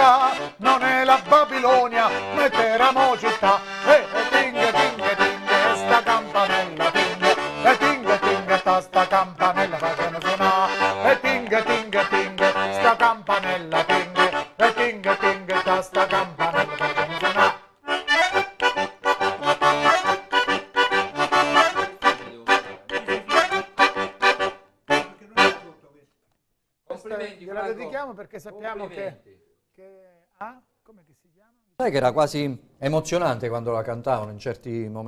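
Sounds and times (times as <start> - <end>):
button accordion playing tune: 0.0 - 25.8.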